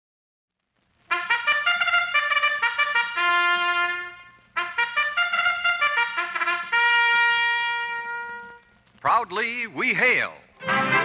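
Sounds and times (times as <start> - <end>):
solo trumpet fanfare: 1.1 - 8.8, 10.6 - 11.0.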